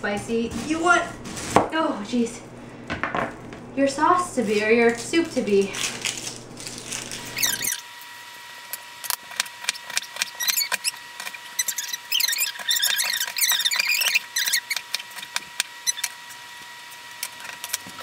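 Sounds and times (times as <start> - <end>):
onion crunching under knife: 5.7 - 7.8.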